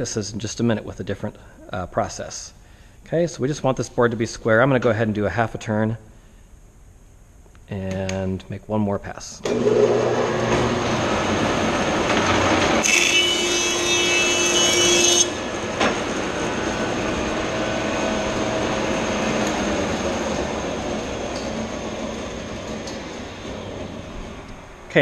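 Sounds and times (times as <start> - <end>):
planer cutting board with whine: 9.4 - 24.5
thickness planer running: 9.4 - 24.9.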